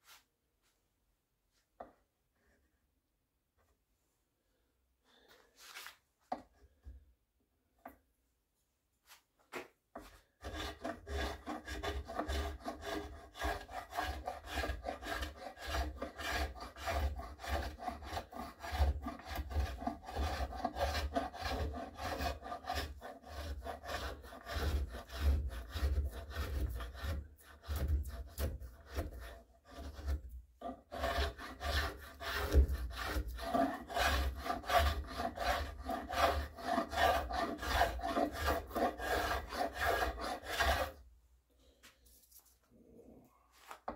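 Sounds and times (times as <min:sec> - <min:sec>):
hand rasp scraping wood: 0:10.0 - 0:41.0.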